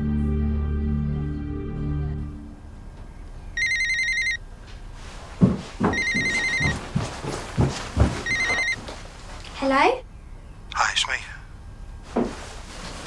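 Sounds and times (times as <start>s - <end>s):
electronic telephone ringer trilling: 3.6s - 4.4s, 6.0s - 6.6s, 8.2s - 8.8s.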